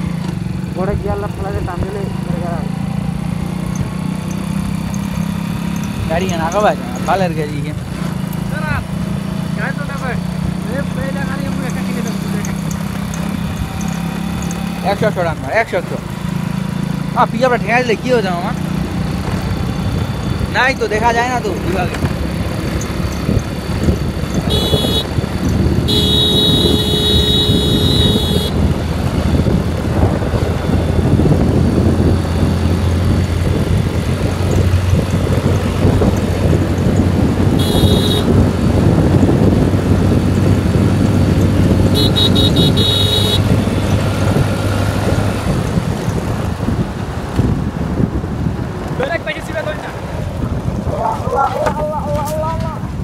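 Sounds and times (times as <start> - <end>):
motorcycle engine running: 0.0 - 49.0
wind rushing over microphone: 21.4 - 53.0
horn beeping: 24.4 - 25.2, 25.8 - 28.6, 37.5 - 38.4, 41.9 - 43.6.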